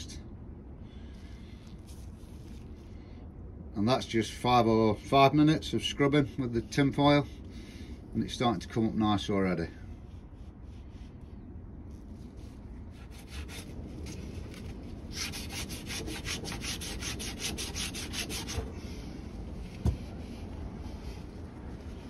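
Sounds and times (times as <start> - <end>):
foil scrubbing metal rim: 13.0 - 18.7.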